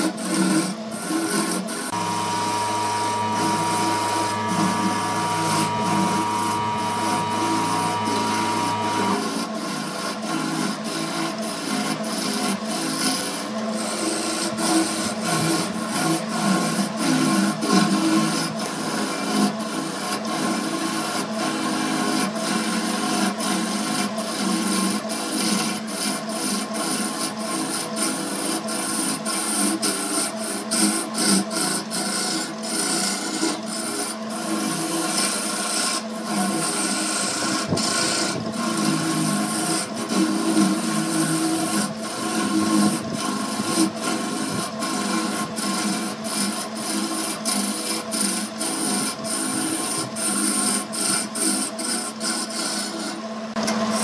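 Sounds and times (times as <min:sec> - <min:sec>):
turning tool scraping wood: 0:00.0 - 0:53.2
lathe motor hum: 0:00.3 - 0:14.0, 0:29.5 - 0:50.4.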